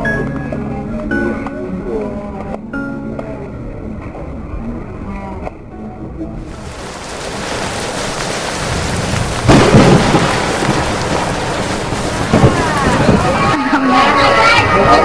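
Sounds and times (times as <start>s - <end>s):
steady rain: 6.4s - 15.0s
loud thunderclap: 6.5s - 13.6s.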